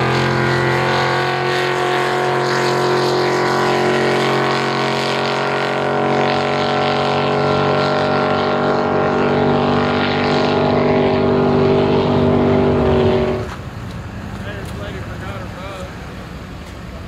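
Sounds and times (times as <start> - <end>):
boat engine high-revving: 0.0 - 13.6.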